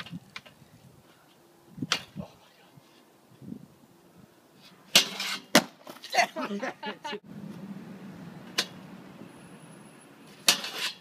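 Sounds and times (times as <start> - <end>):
skateboard scraping on rail: 4.6 - 6.0, 10.3 - 11.0.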